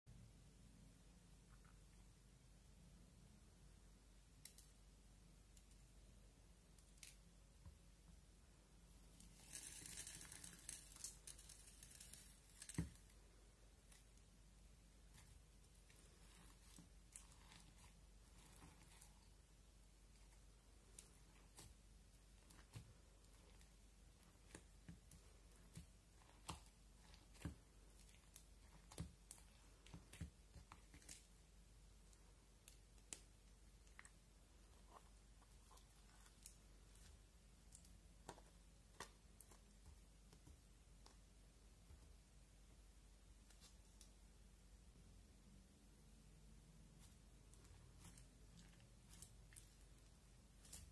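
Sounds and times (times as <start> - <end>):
crunchy flakes crackling in slime: 9.2 - 13.1.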